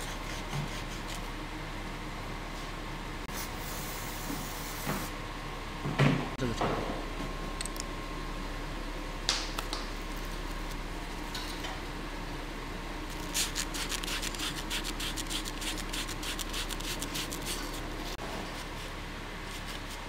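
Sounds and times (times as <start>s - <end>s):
workshop background noise: 2.5s - 5.2s, 13.1s - 20.0s
abrasive paper scraping metal: 13.1s - 18.7s.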